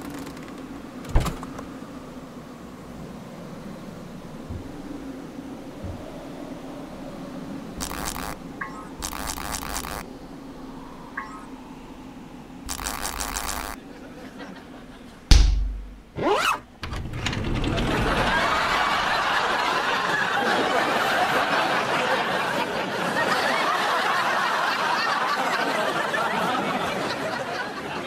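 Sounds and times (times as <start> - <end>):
sliding pitch glide: 4.4 - 10.1, 12.7 - 13.8
buzzing rattle: 7.7 - 10.1, 12.6 - 13.8
audience laughter: 13.8 - 15.3, 17.6 - 28.0
loud bang: 15.3 - 16.2.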